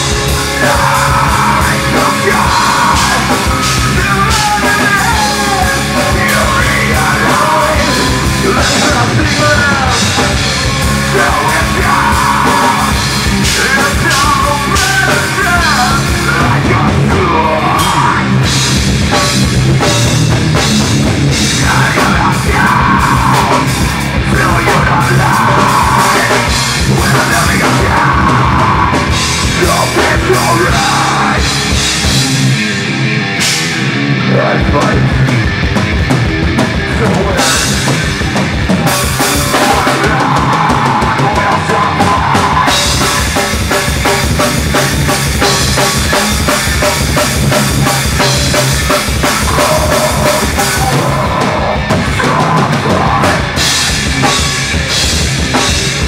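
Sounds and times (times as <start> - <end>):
heavy rock band playing: 0.0 - 56.0
vocalist screaming: 10.8 - 18.4, 21.6 - 31.6.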